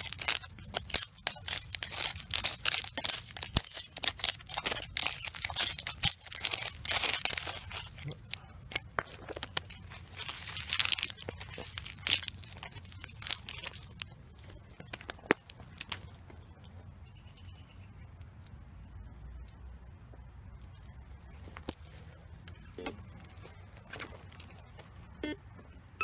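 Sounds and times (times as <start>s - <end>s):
scraping soil: 0.0s - 16.0s
stones clicking together: 0.0s - 16.1s
dry leaves crunching: 0.0s - 16.2s.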